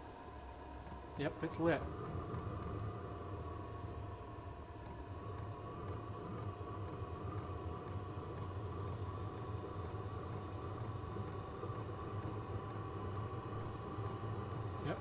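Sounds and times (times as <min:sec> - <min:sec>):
heater fans humming: 0:00.0 - 0:15.0
fuel pump ticking: 0:01.8 - 0:02.8, 0:04.8 - 0:15.0.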